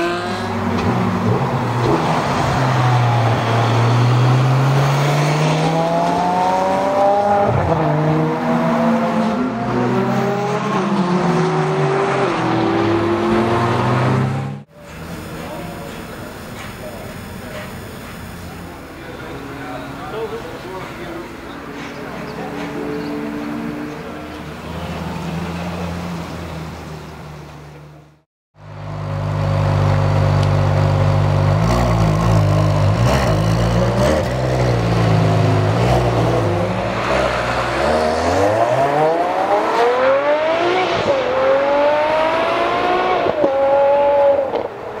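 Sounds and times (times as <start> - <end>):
sports car engine revving: 4.1 - 14.7, 31.4 - 44.7.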